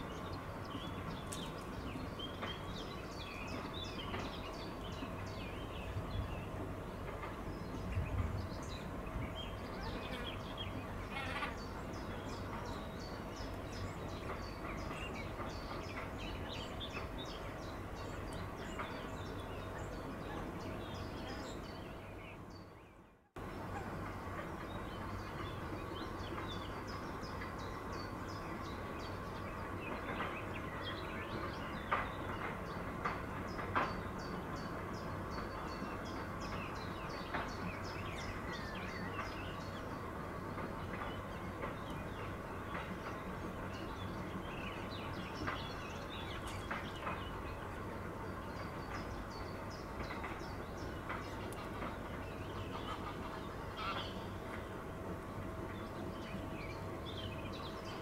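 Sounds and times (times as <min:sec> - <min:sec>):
small songbirds chirping: 0:00.0 - 0:58.0.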